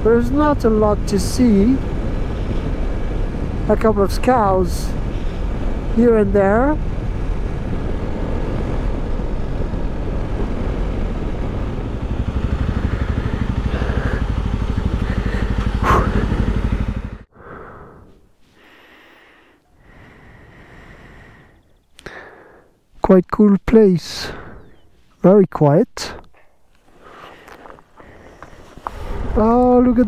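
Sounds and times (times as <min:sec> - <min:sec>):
motorcycle engine running: 0:00.0 - 0:17.3
quiet outdoor background: 0:00.0 - 0:30.0
wind and road noise: 0:00.0 - 0:30.0.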